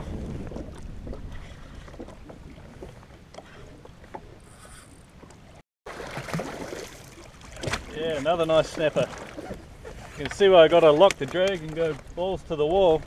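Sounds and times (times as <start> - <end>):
wind on microphone: 0.0 - 3.0
water lapping against hull: 0.0 - 13.0
faint clicks and knocks: 11.0 - 12.1.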